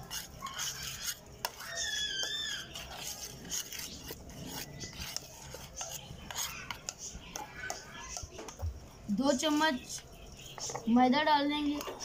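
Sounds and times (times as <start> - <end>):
metal spoon scraping a plate: 0.0 - 8.4.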